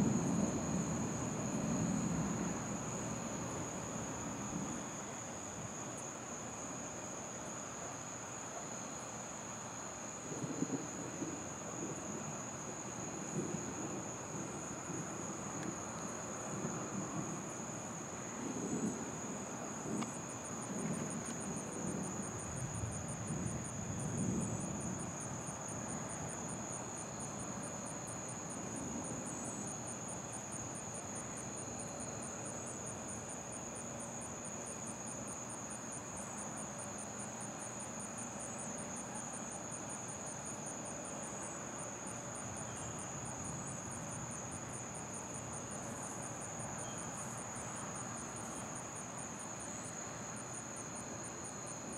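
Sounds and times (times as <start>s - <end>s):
distant thunder rumble: 0.0s - 4.8s, 18.4s - 26.1s
night insects droning: 0.0s - 51.9s
pulsing insect chirp: 0.0s - 51.9s.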